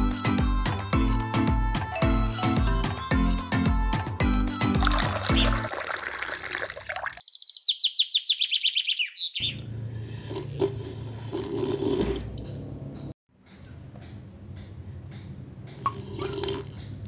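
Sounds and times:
water pouring into a bowl: 0:04.8 - 0:07.2
high bird-like chirps: 0:07.2 - 0:09.7.

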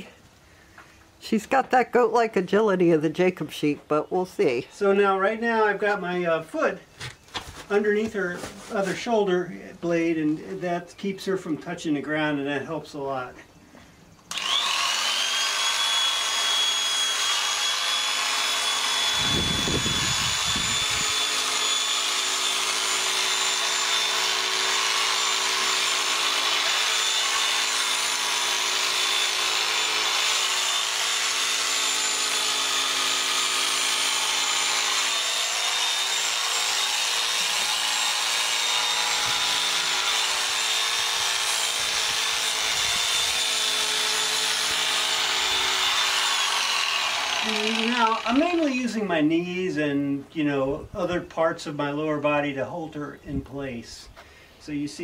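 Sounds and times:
electric clippers whining: 0:14.3 - 0:48.6.

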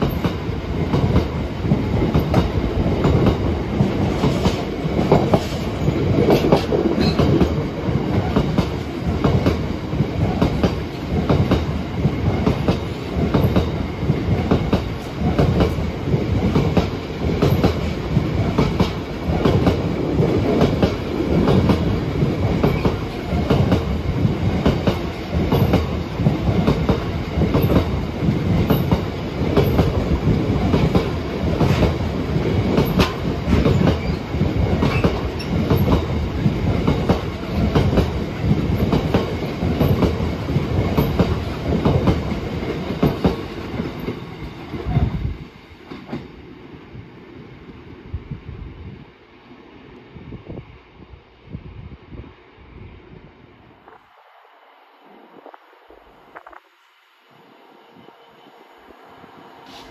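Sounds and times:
train wheels clattering over rail joints: 0:00.0 - 0:45.1.

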